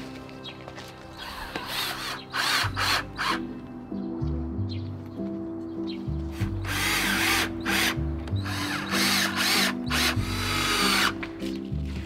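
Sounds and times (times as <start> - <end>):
cordless drill whine: 6.6 - 11.2.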